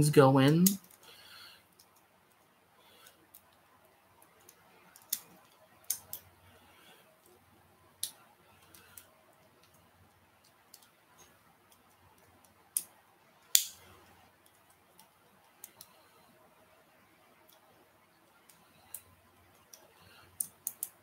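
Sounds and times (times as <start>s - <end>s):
plastic toy parts clicking and snapping: 4.4s - 6.3s, 13.5s - 13.8s, 20.4s - 21.0s.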